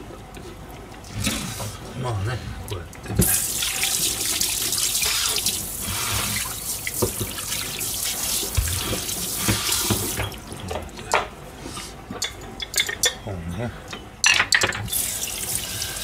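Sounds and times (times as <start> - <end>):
tap running into metal sink: 6.3 - 7.4, 8.4 - 10.4.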